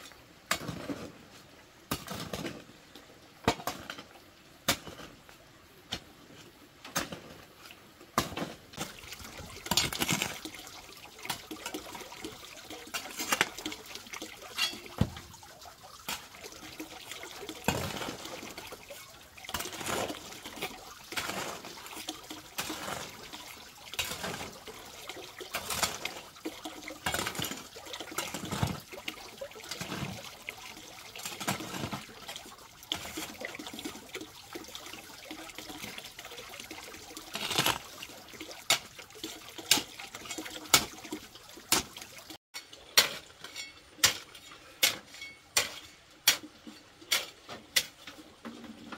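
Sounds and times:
metal hoe scraping gravelly sand: 0:00.5 - 0:02.6, 0:19.5 - 0:23.4, 0:24.0 - 0:24.6, 0:29.7 - 0:30.3, 0:31.2 - 0:32.2, 0:37.3 - 0:37.9.

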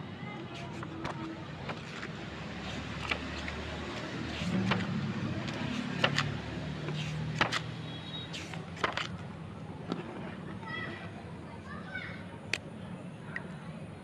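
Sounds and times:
sketchbook pages turning: 0:00.4 - 0:10.2.

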